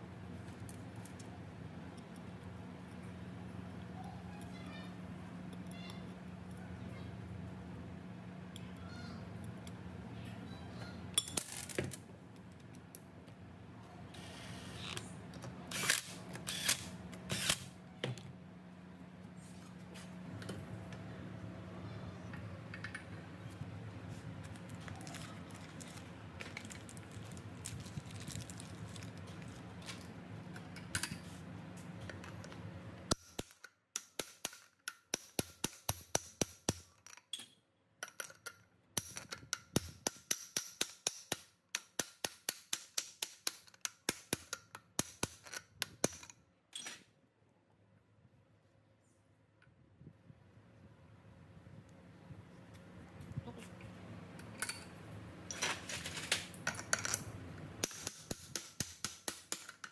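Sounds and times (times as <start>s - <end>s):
low machine hum: 0.0s - 33.2s.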